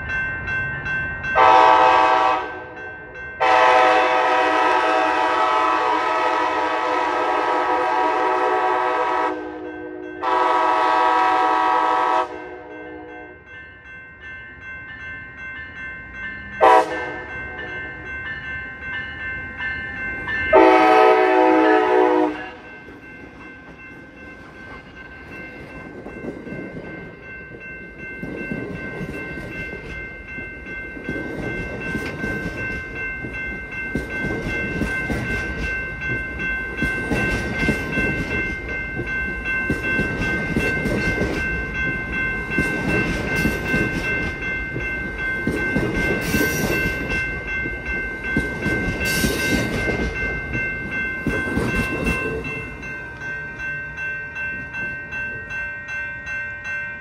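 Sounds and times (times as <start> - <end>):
crossing warning bell ringing: 0.0 - 57.0
train cars rolling past: 15.4 - 57.0.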